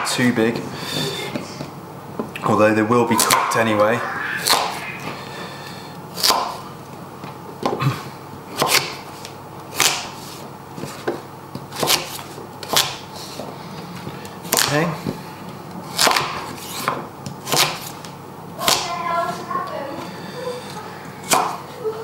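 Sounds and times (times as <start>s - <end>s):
knife chopping on wooden board: 8.6s - 9.0s, 11.0s - 13.0s, 16.0s - 17.9s.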